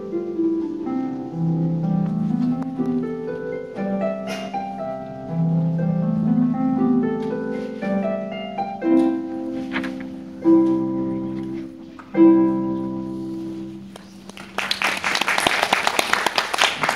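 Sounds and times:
harp playing plucked notes: 0:00.0 - 0:14.3
applause: 0:14.0 - 0:16.9.

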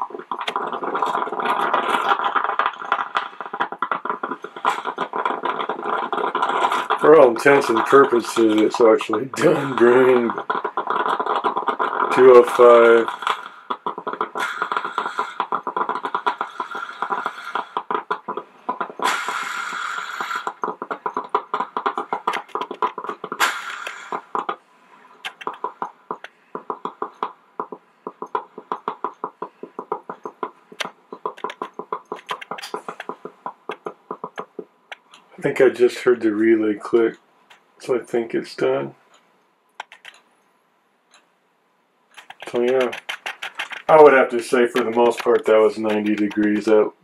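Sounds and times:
drip coffee maker gurgling: 0:00.0 - 0:24.5
hissing steam bursts: 0:00.6 - 0:17.9, 0:18.8 - 0:24.4, 0:42.4 - 0:46.8.

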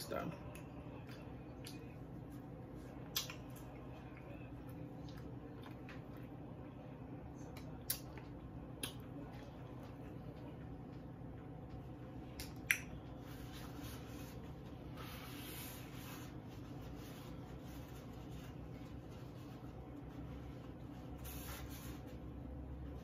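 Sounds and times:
paper napkin rustling: 0:13.1 - 0:23.0.

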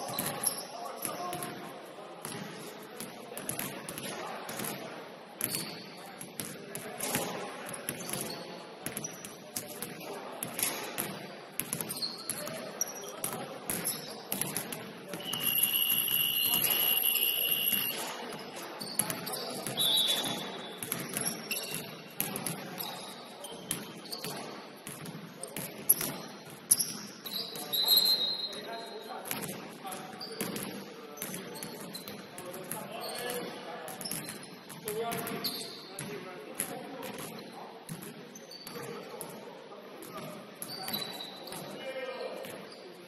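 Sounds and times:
sneaker squeaks: 0:00.0 - 0:01.6, 0:05.4 - 0:09.8, 0:10.5 - 0:39.2, 0:40.1 - 0:43.0
voices echoing: 0:00.0 - 0:43.0
basketballs bouncing on hardwood: 0:19.0 - 0:23.0.

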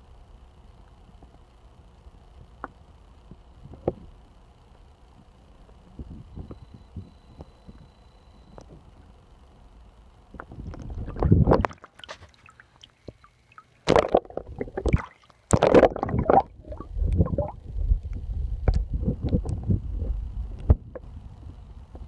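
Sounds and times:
muffled water sloshing underwater: 0:10.3 - 0:22.0
low rumble: 0:15.9 - 0:22.0.

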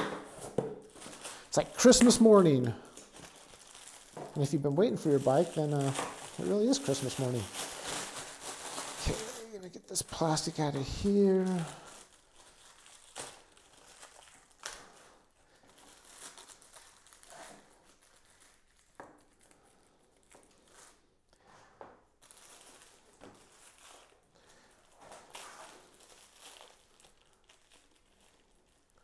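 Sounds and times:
plastic wrap crinkling and tearing: 0:00.0 - 0:21.3, 0:22.0 - 0:29.0.

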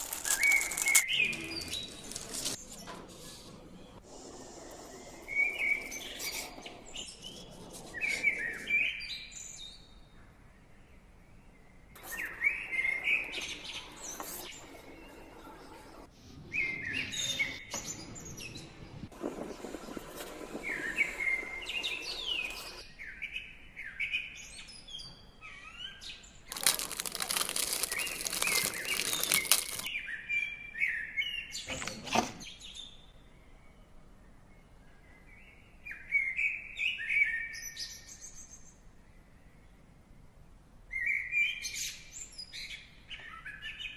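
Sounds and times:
small birds chirping: 0:00.0 - 0:02.9, 0:03.7 - 0:10.3, 0:10.9 - 0:31.7.

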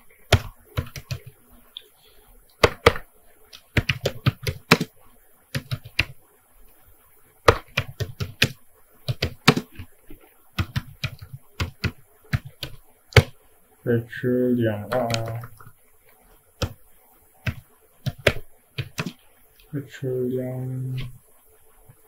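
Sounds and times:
keyboard typing: 0:00.0 - 0:06.2, 0:07.4 - 0:13.4, 0:14.8 - 0:19.7.

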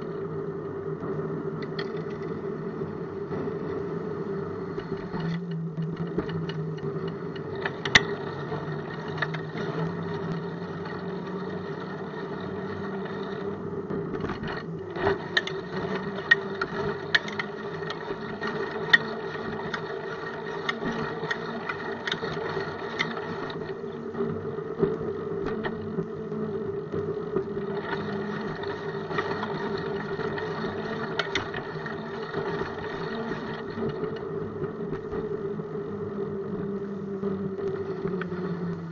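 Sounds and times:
bicycle rolling on pavement: 0:00.0 - 0:38.9.

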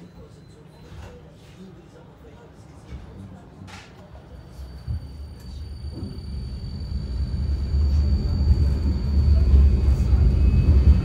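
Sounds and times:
tram rumbling: 0:03.8 - 0:11.0
faint steady high whine: 0:04.1 - 0:11.0.

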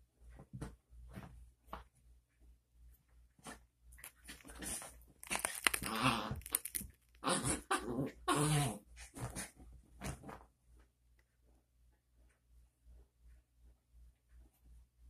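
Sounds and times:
dog grumbling: 0:07.2 - 0:09.5.

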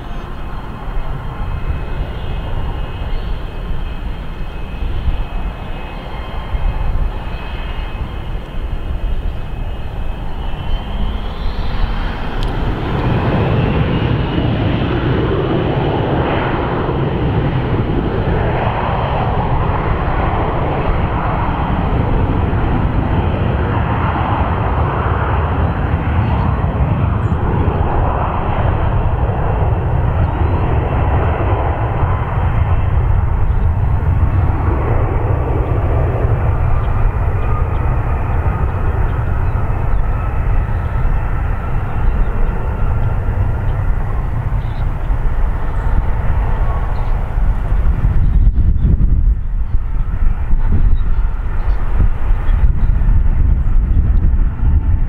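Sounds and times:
jet engine roar: 0:00.0 - 0:55.0
jet engines whining: 0:00.0 - 0:55.0.

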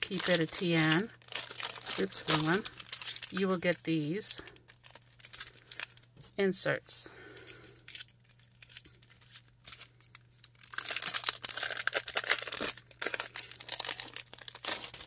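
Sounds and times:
plastic packaging crinkling: 0:00.0 - 0:06.4, 0:07.4 - 0:15.0.

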